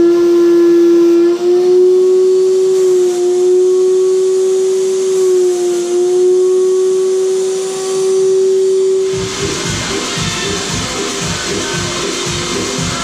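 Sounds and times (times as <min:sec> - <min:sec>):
sprayer turbine high whine: 0:00.0 - 0:13.0.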